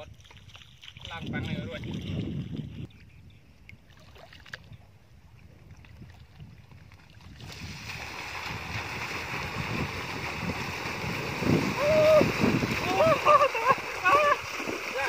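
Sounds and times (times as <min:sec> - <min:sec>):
bicycle splashing through muddy water: 0:07.2 - 0:15.0.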